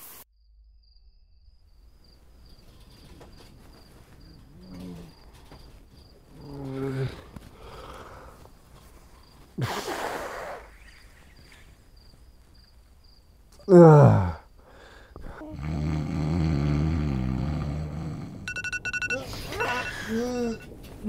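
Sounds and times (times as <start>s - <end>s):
man groaning: 13.6s - 14.5s, 19.2s - 20.6s
man snoring: 13.7s - 14.5s, 15.2s - 18.5s
man sniffling breath: 14.6s - 15.4s
electronic alarm beeping: 18.5s - 20.7s.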